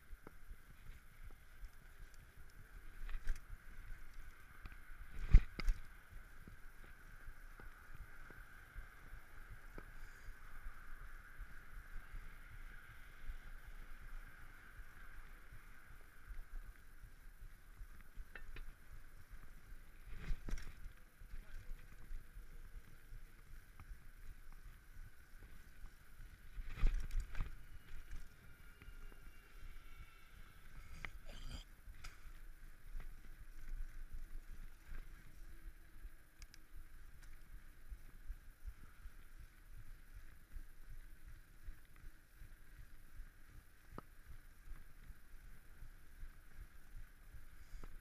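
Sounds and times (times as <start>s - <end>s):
bicycle tyres rumbling on pavement: 0.0s - 31.0s, 31.7s - 48.0s.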